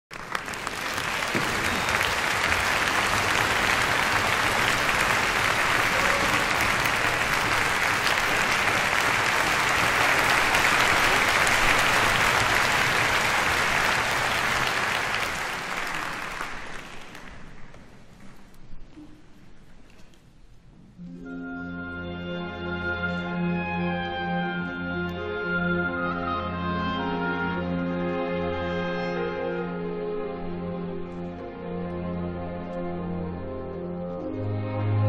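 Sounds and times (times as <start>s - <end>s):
audience applauding: 0.1s - 18.1s.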